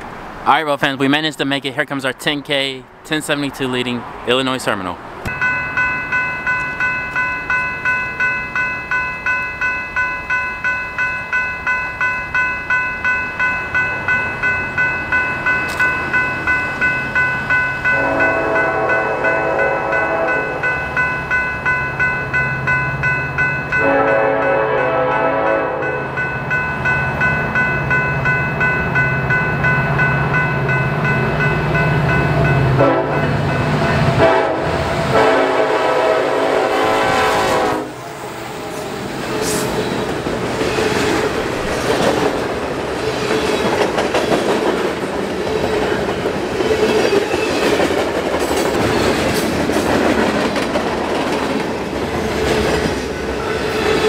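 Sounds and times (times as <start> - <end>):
crossing warning bell ringing: 4.3 - 54.0
train horn blasts: 17.8 - 20.7, 23.8 - 26.2, 32.7 - 38.2.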